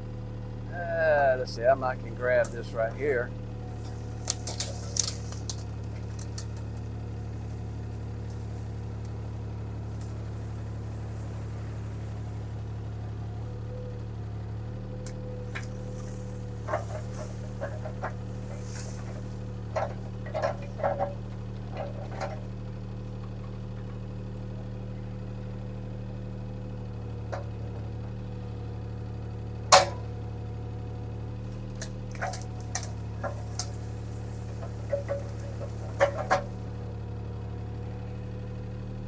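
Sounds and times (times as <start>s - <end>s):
diesel engine running: 0.0s - 39.0s
short clicks and knocks: 15.1s - 22.5s, 34.5s - 36.6s.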